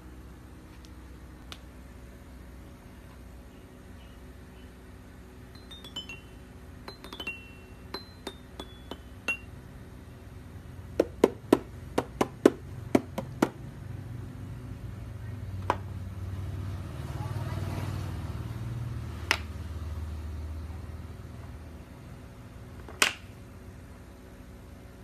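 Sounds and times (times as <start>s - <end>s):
toy xylophone notes: 5.5s - 9.6s
mallet knocking on wooden board: 11.0s - 13.6s.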